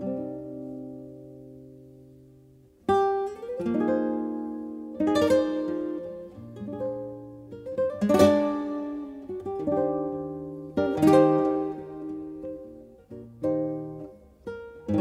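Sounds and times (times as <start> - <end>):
strummed guitar chords: 0.0 - 15.0.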